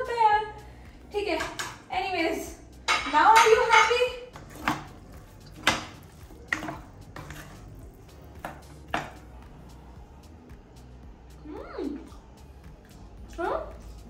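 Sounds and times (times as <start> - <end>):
dishes and utensils clinking: 1.4 - 1.8, 2.8 - 7.8.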